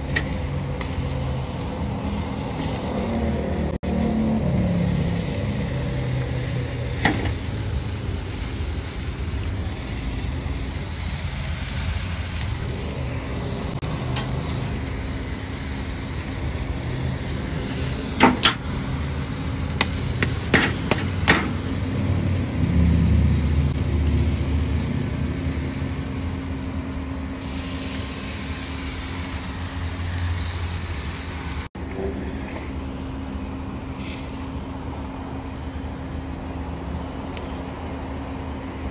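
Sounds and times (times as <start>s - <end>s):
steady low rumble: 0.0s - 29.9s
chicken sizzling on a grill: 0.0s - 38.9s.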